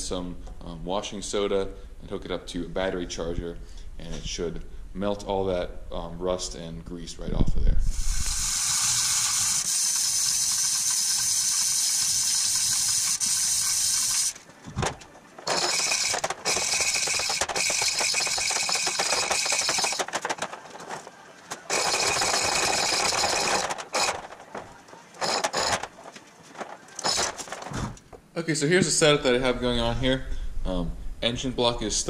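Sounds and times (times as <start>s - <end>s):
chain hoist rattling: 9.2s - 14.4s, 15.4s - 21.0s, 21.7s - 26.1s, 26.9s - 27.7s.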